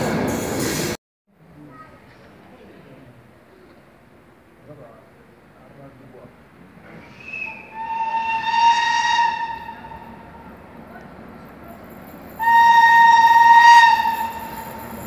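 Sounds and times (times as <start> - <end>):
locomotive horn blasts: 7.7 - 10.2, 12.4 - 14.6.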